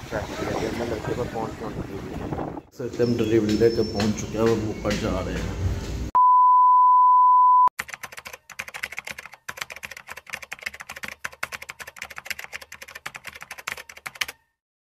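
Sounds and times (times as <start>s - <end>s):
steady high beep: 6.2s - 7.7s
keyboard typing clicks: 7.8s - 14.4s.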